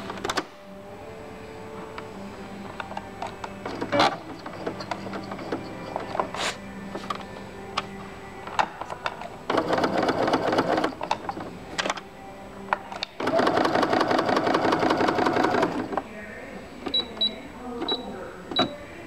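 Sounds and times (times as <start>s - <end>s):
sewing machine stitching: 3.6s - 6.3s, 9.5s - 11.5s, 13.2s - 16.0s.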